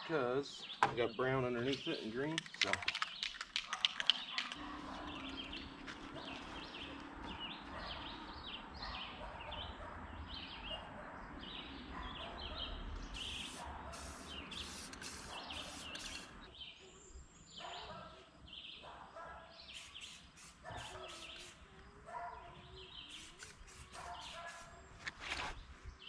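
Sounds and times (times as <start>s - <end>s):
small birds chirping: 0.1s - 26.0s
spray paint can hissing: 13.1s - 16.4s, 19.7s - 21.6s, 23.1s - 24.8s.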